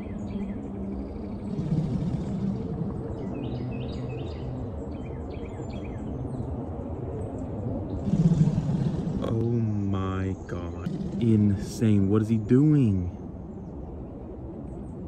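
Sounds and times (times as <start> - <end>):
alligator low call: 1.4 - 3.1, 8.0 - 13.1
small birds chirping: 8.0 - 13.1.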